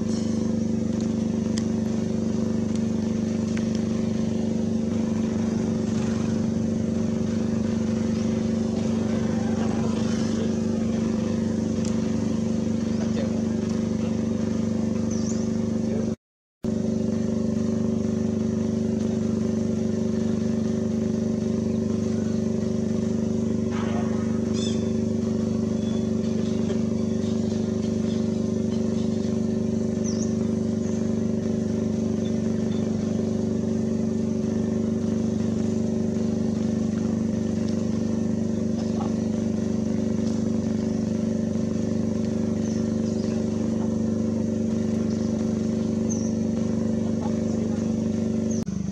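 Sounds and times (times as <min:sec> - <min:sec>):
steady mechanical hum: 0:00.0 - 0:48.9.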